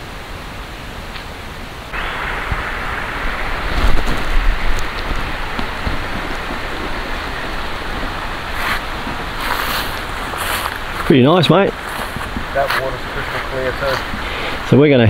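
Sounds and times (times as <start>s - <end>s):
creek water rushing: 0.0s - 15.0s
low thumps: 1.9s - 11.1s, 11.7s - 13.1s.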